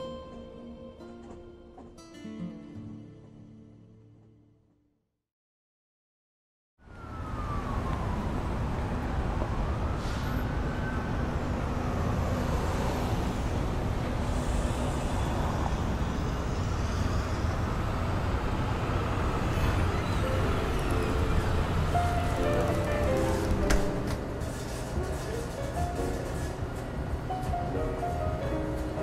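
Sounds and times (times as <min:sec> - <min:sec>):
siren wailing: 0:06.8 - 0:12.6
traffic rumble: 0:06.9 - 0:29.0.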